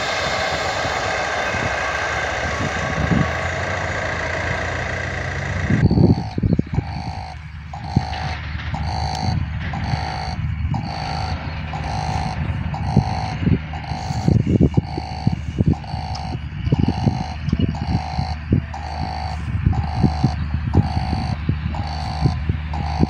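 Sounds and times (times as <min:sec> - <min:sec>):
steady low rumble: 0:00.0 - 0:23.0
level-crossing warning bell: 0:05.8 - 0:23.0.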